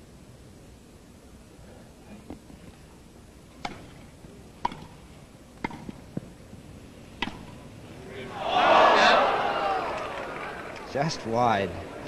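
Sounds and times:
racket hitting tennis ball: 3.6 - 6.3, 7.2 - 7.7.

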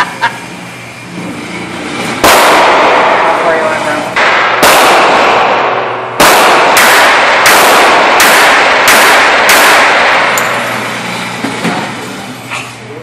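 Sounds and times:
handgun shots echoing indoors: 2.2 - 3.6, 4.2 - 10.8.

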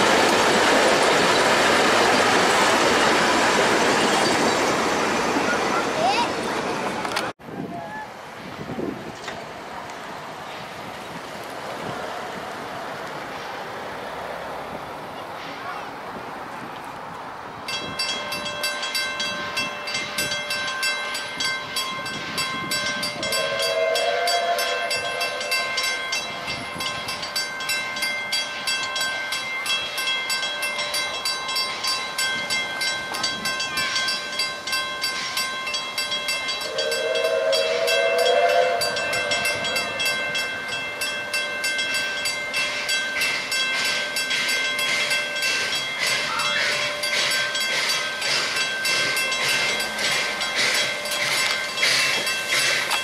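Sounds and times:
level crossing bells ringing: 17.7 - 53.0
steam whistle blasts: 23.1 - 25.8, 36.6 - 40.0.

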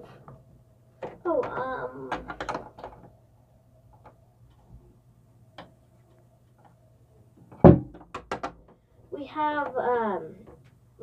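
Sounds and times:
faint steady hum: 0.0 - 11.0
plastic toys clicking and tapping: 1.0 - 3.1, 8.0 - 8.8.

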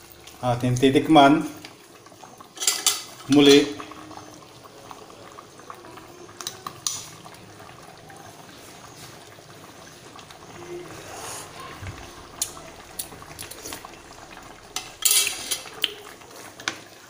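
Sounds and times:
stew bubbling in a pot: 0.0 - 17.0
metal ladle scraping: 14.7 - 16.1.

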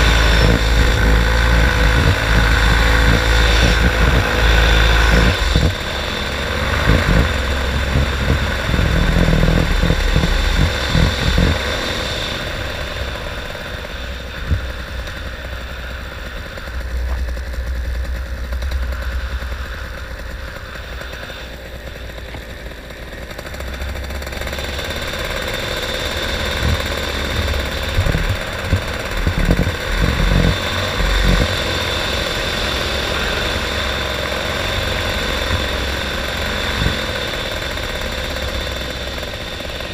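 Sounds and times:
wind buffeting microphone: 0.0 - 13.0, 26.4 - 31.8
paramotor engine and propeller: 0.0 - 39.9.

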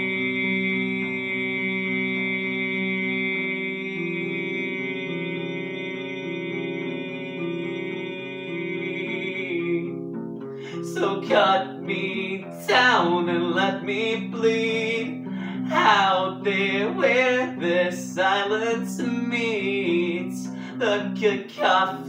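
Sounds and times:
acoustic guitar strumming: 0.0 - 22.0
man singing: 3.7 - 9.9, 10.6 - 22.0.

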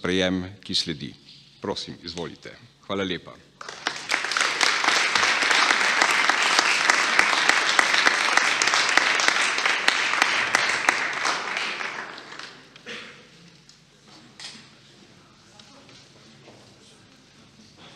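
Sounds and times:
audience applauding: 3.6 - 12.8.

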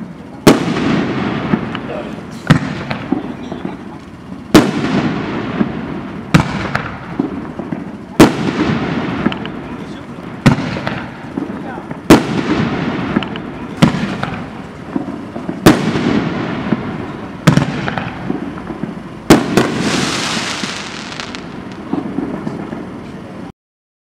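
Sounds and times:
firework rumble and hiss: 0.0 - 23.5
firework shells banging: 0.5 - 22.9
small firework pops: 6.3 - 9.6, 10.4 - 16.2, 19.3 - 22.9.

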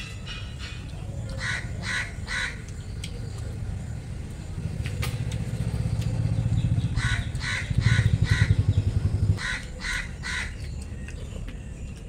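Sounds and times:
low engine rumble: 0.2 - 12.0
crow cawing: 1.4 - 2.6, 7.0 - 8.6, 9.4 - 10.6.

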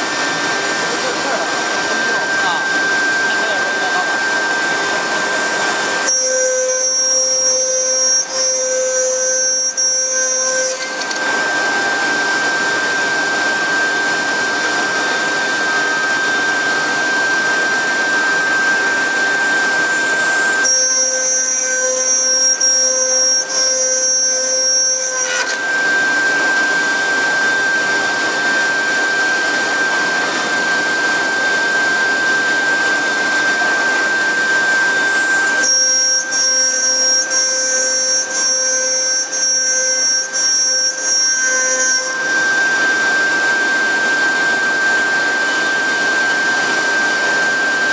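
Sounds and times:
router bit cutting: 0.0 - 47.9
router spindle whine: 0.0 - 47.9.

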